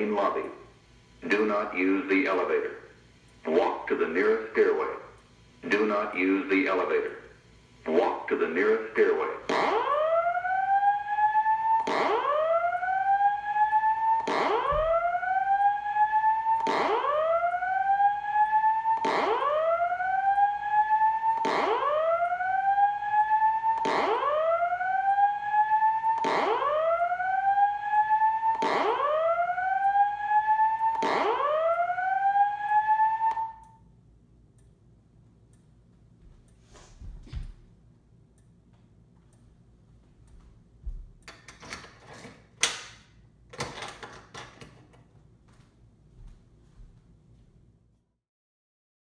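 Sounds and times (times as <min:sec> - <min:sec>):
fire alarm whoop tone: 0:09.3 - 0:33.9.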